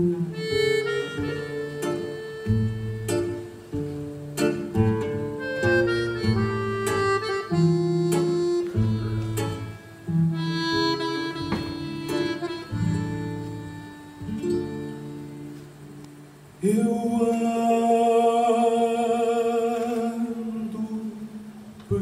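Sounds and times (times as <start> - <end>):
guitars plucking chords: 0.0 - 16.6
man singing: 16.6 - 22.0.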